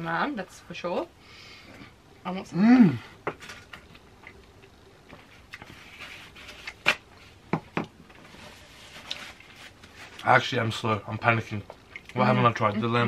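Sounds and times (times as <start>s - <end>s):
soft eating clicks and smacks: 3.7s - 5.7s, 11.6s - 12.2s.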